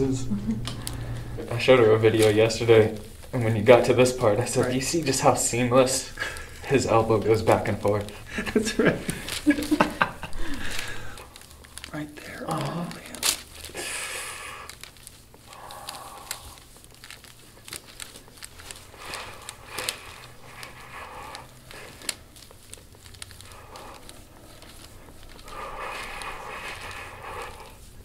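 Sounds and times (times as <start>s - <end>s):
massage rubbing on skin: 0.0s - 28.0s
small crackles: 0.6s - 28.0s.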